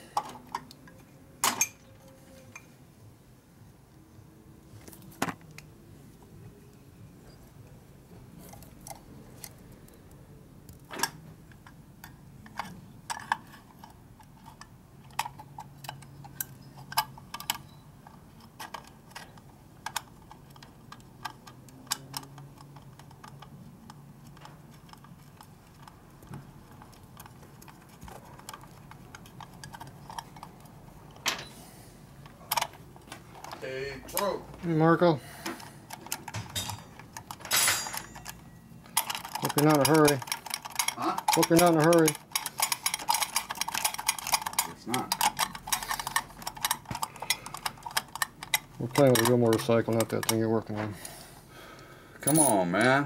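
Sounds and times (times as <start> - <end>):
small metallic clicks and taps: 35.4 - 50.5.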